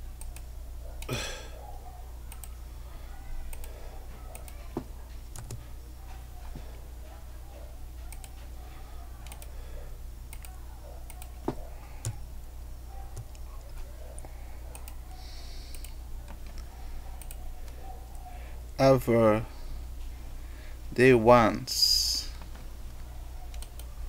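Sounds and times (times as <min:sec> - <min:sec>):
low electrical hum: 0:00.0 - 0:24.0
keyboard typing: 0:02.2 - 0:02.6, 0:03.4 - 0:06.4, 0:07.9 - 0:08.6, 0:09.2 - 0:09.5, 0:10.3 - 0:12.3, 0:13.0 - 0:18.3, 0:22.9 - 0:23.9
mouse clicks: 0:15.7 - 0:18.3, 0:23.5 - 0:23.9.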